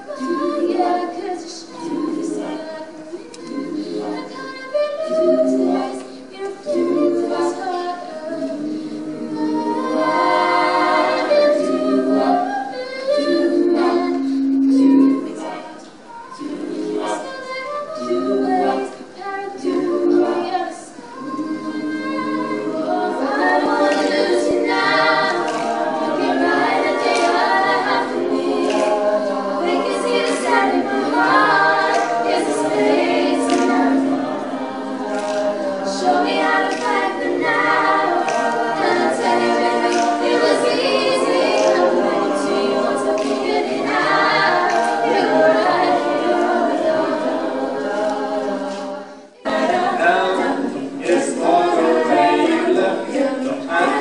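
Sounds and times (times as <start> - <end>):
group singing a cappella: 0.0 - 54.0.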